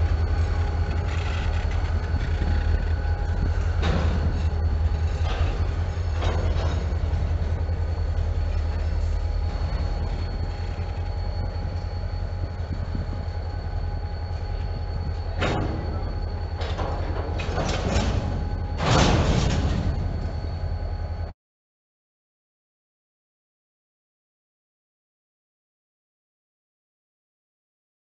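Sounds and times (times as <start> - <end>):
diesel locomotive engine rumbling: 0.0 - 21.3
faint high whine: 0.0 - 21.4.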